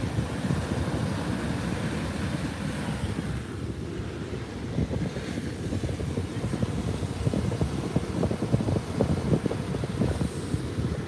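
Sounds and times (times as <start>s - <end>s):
ocean surf breaking: 0.0s - 11.0s
wind buffeting microphone: 0.0s - 11.0s.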